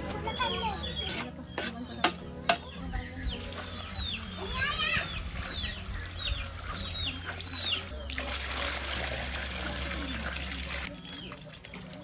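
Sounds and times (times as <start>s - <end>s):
water pouring into wok: 7.9s - 12.0s.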